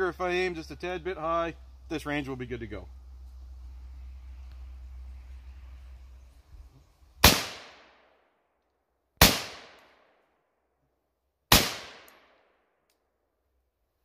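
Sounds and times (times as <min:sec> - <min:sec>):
rifle gunshots with echo: 0:07.2 - 0:08.0, 0:09.2 - 0:10.1, 0:11.5 - 0:12.5.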